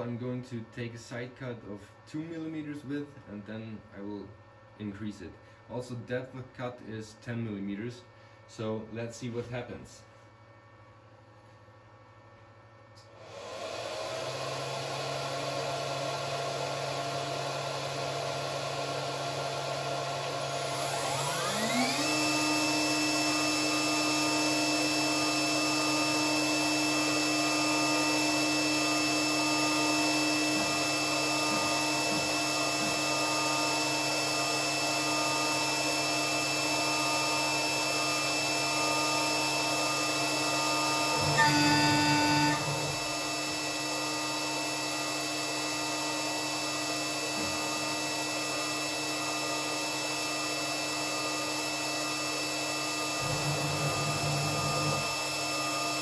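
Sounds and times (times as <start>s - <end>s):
router spindle whining: 13.1s - 56.0s.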